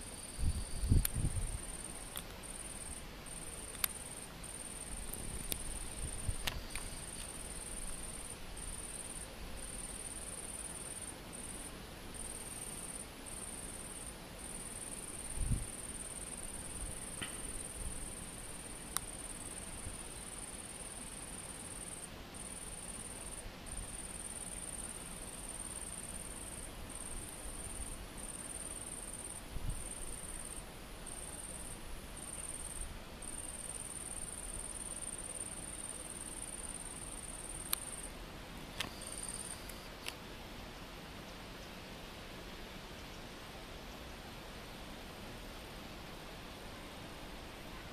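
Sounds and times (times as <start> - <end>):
insect buzzing: 0.0 - 38.1
faint clicks: 3.7 - 4.0.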